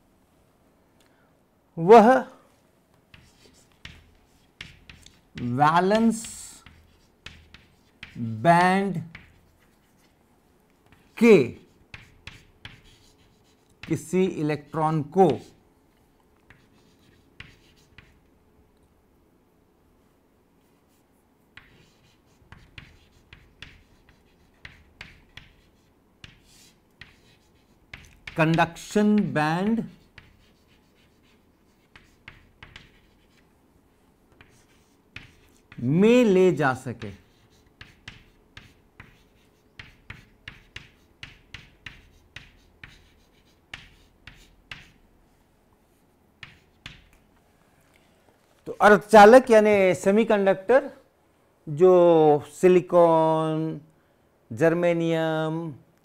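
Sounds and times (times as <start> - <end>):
chalk scratching on chalkboard: 3.1 - 10.2, 10.8 - 15.6, 16.4 - 18.3, 20.6 - 33.6, 34.3 - 45.1, 46.4 - 47.2.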